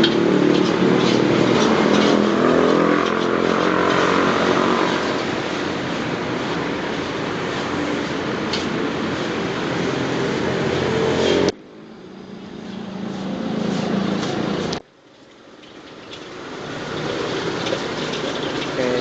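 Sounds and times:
rice stir-fried in a wok: 0.0 - 10.9, 11.9 - 19.0
gas burner rushing: 0.0 - 11.6, 15.7 - 19.0.

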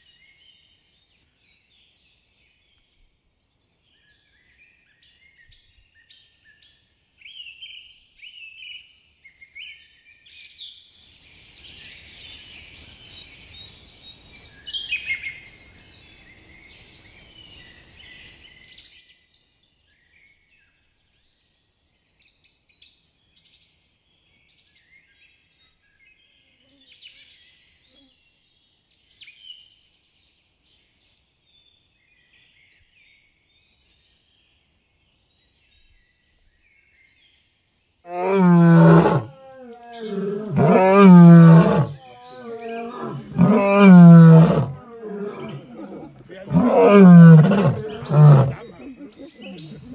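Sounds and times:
birds chirping and singing: 38.1 - 49.9.

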